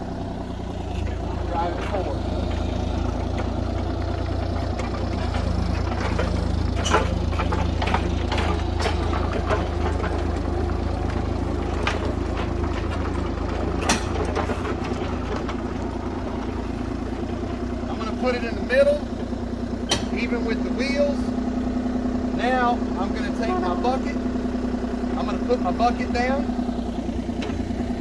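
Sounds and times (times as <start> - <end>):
excavator diesel engine running: 0.0 - 28.0
sharp knocks on ramps: 4.7 - 10.4, 11.1 - 15.7, 19.8 - 20.2.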